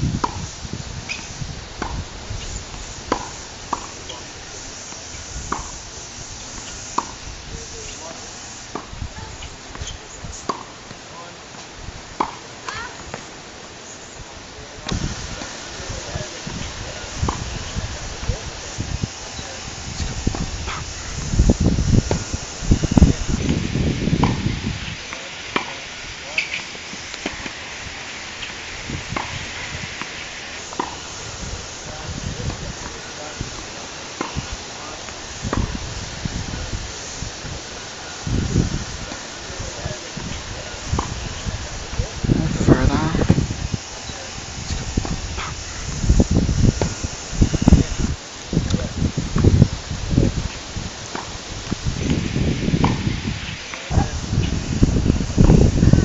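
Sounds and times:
steady outdoor hiss: 0.0s - 56.0s
tennis ball bouncing: 2.7s - 4.2s, 4.9s - 5.8s, 6.5s - 7.2s, 8.1s - 8.9s, 9.7s - 13.3s, 24.2s - 24.4s, 26.4s - 27.6s, 30.7s - 31.0s, 34.2s - 34.4s
tennis racket hitting ball: 2.7s - 4.2s, 4.9s - 7.2s, 7.9s - 13.2s, 24.2s - 24.4s, 25.5s - 25.8s, 26.4s - 27.6s, 30.7s - 31.0s
tennis ball pops: 9.8s - 11.0s.

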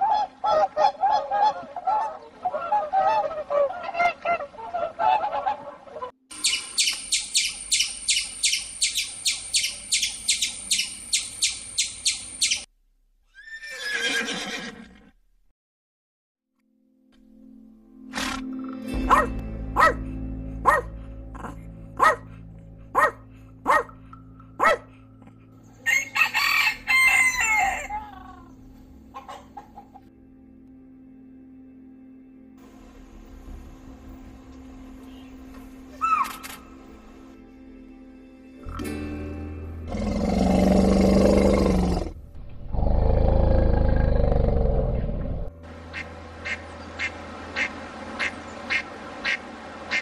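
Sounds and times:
puppy yapping: 19.1s - 20.0s, 20.7s - 22.2s, 23.0s - 23.9s, 24.6s - 24.9s
rooster crowing: 25.8s - 28.1s
large animal roaring: 39.9s - 45.5s.

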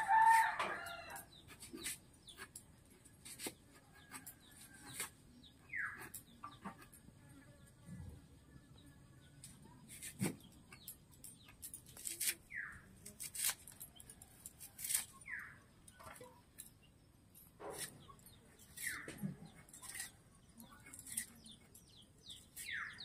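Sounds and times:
blade slicing vegetables: 12.0s - 12.4s, 14.6s - 15.4s, 17.6s - 20.2s.

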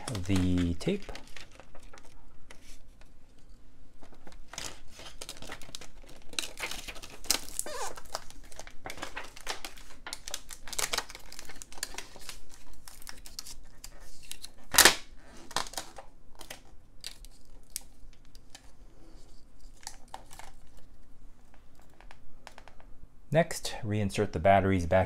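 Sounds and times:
adhesive tape crinkling and tearing: 0.0s - 2.8s, 4.0s - 18.6s.

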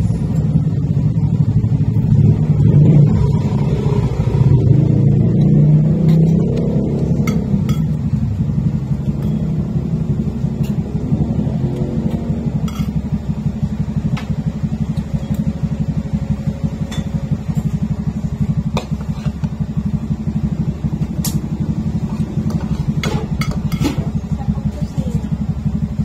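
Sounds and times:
pulsing motor drone: 0.0s - 26.0s
spoons clinking on plates: 7.2s - 8.0s, 12.6s - 13.0s.

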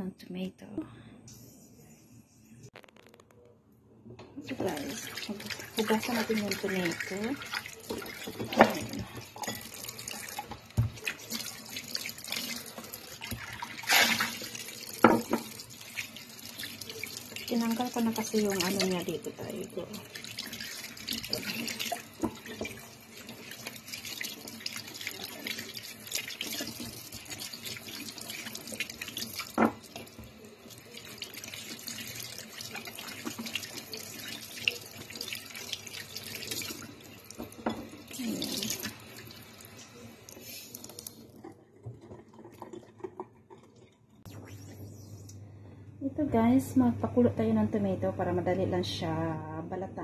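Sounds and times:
tap running into sink: 7.8s - 11.2s, 12.7s - 15.6s, 28.6s - 30.4s.

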